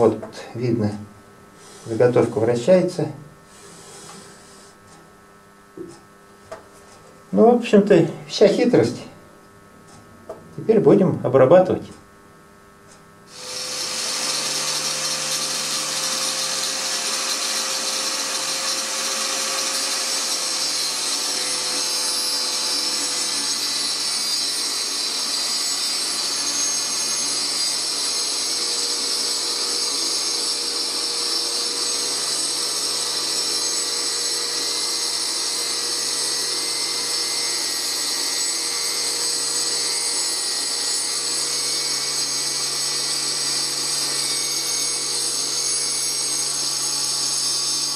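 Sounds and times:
angle grinder whining into wood: 3.5 - 4.8, 13.3 - 47.9.

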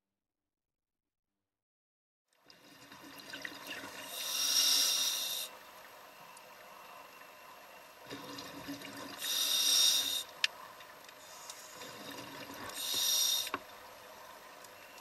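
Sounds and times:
diver breathing through regulator: 4.1 - 5.5, 9.2 - 10.3, 12.7 - 13.6.

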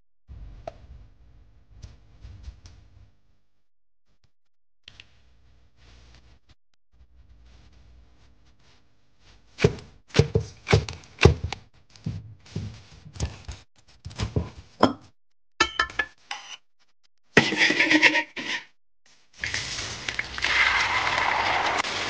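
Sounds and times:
sharp knocks and thuds: 9.6 - 13.4.

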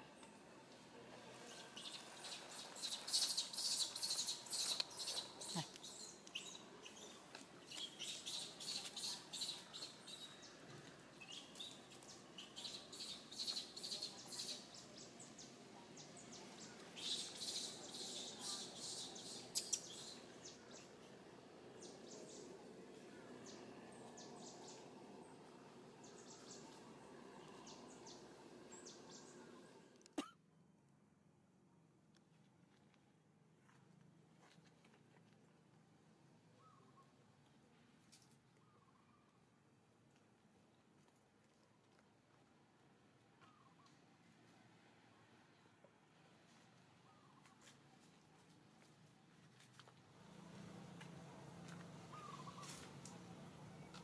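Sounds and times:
faint outdoor hiss: 0.0 - 54.0
birds chirping: 1.3 - 30.0, 51.3 - 54.0.

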